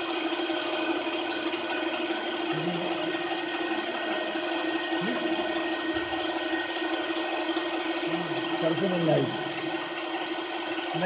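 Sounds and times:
welding machine humming: 0.0 - 11.0.

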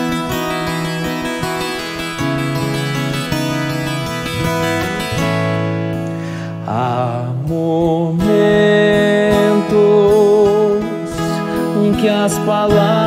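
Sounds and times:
fingerstyle guitar plucking: 0.0 - 13.0
man singing with vibrato: 6.6 - 13.0.

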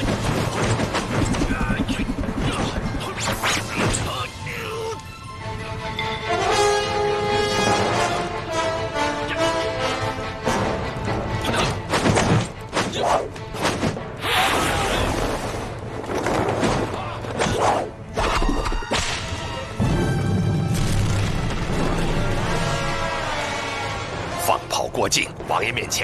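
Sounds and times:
background music score: 3.0 - 26.0
thuds and impacts: 11.5 - 13.0.

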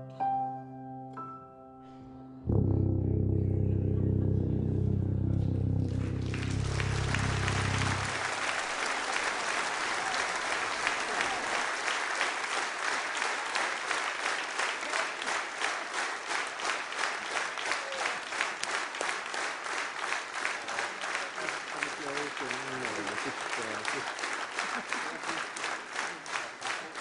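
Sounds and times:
band low chord: 2.2 - 8.5
rhythmic clapping in unison: 5.4 - 27.0
audience applauding: 5.8 - 27.0.

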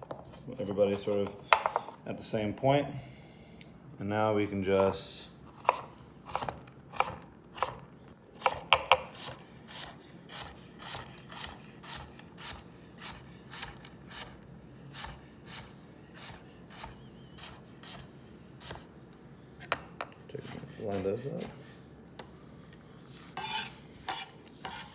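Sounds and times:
knife chopping on wooden board: 5.6 - 7.8, 8.4 - 14.3.

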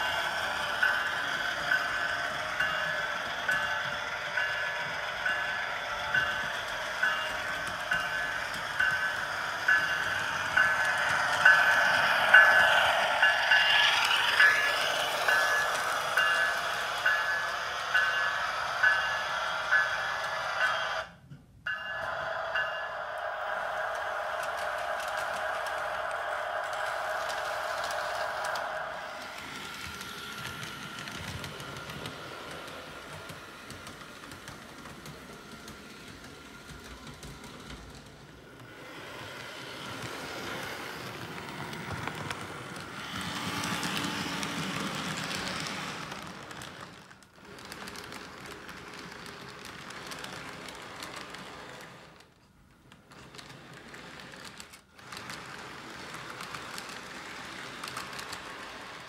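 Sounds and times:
model trains rolling on track: 0.0 - 59.0
wheels clicking over rail joints: 24.0 - 59.0.

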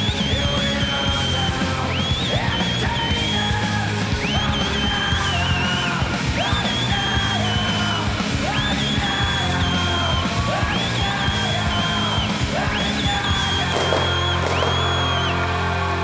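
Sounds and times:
rock backing track: 0.0 - 16.0
woman whistling shrilly: 8.5 - 15.4.

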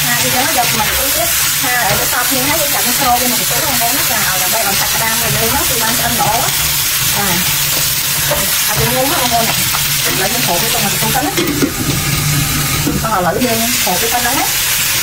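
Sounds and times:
spatula scraping a wok: 0.0 - 13.1
crab sizzling in hot oil: 0.0 - 15.0.

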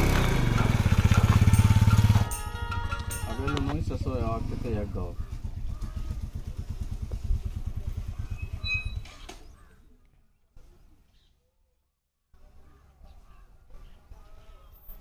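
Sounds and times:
motorcycle engine running: 0.0 - 9.3.

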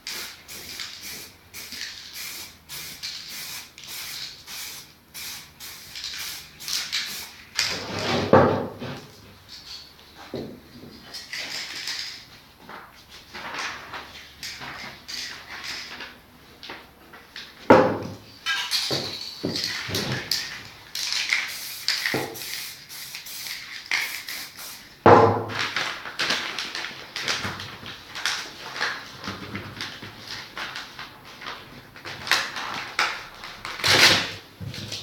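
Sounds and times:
spray paint hissing: 0.0 - 7.6, 18.6 - 24.9.

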